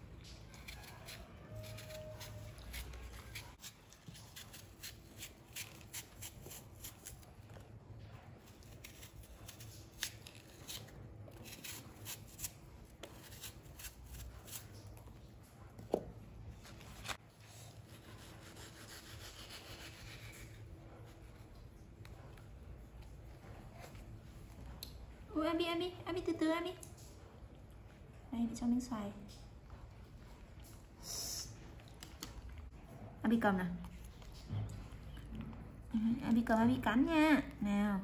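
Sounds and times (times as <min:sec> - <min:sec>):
knife peeling apple skin: 0:00.2 - 0:07.3, 0:08.4 - 0:15.0, 0:16.7 - 0:20.6.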